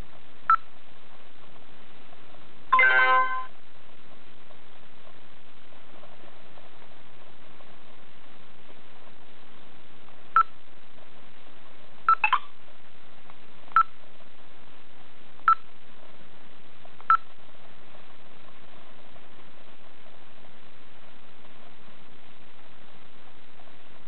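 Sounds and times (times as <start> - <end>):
electronic key-press beeps: 12.1 - 12.5.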